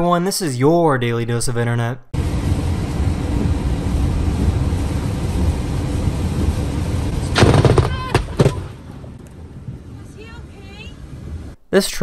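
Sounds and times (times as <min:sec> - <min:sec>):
rain on car: 0:02.2 - 0:11.4
road noise inside car: 0:02.2 - 0:11.6
thunder crack: 0:02.2 - 0:11.6.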